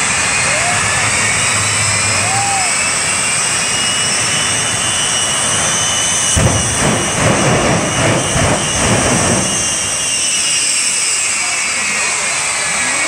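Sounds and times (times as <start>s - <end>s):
jet engines whining and roaring: 0.0s - 13.0s
choppy low rumbling: 5.4s - 10.2s.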